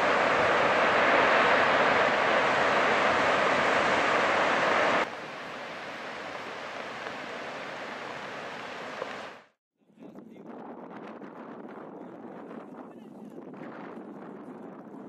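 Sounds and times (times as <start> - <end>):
steady rushing noise: 0.0 - 9.6.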